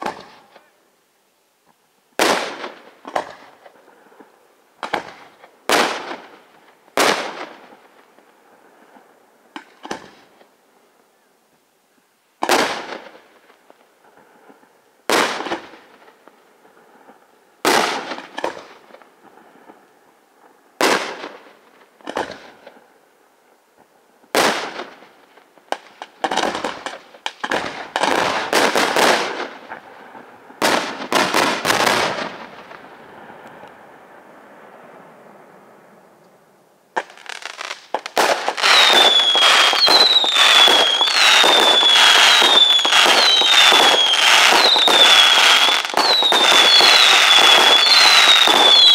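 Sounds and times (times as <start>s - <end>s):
rapid firework bangs: 4.8s - 6.4s, 7.0s - 7.7s, 15.1s - 16.0s, 17.6s - 18.8s, 20.8s - 22.6s, 24.4s - 25.1s, 25.7s - 29.9s, 30.6s - 32.9s, 37.0s - 48.9s
falling firework whistles: 37.0s - 48.9s
firework shell bursts crackling: 37.0s - 48.9s.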